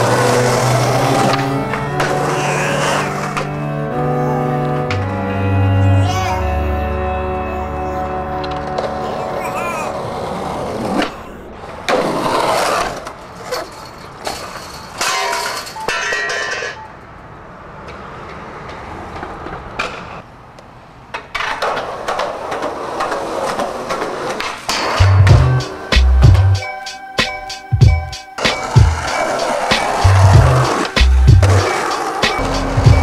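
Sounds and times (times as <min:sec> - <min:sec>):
skateboard wheels rolling on concrete: 0:00.0 - 0:33.0
skateboard clacking on landings: 0:21.1 - 0:25.8
hip-hop beat with heavy bass: 0:24.9 - 0:33.0.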